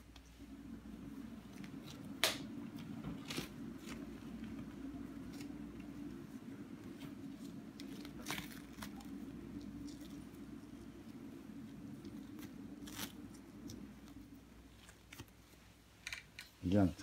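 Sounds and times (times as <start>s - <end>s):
steady low hum: 0.0s - 17.0s
adhesive strips rustling and crackling: 1.6s - 6.1s, 6.8s - 10.7s, 12.0s - 16.9s.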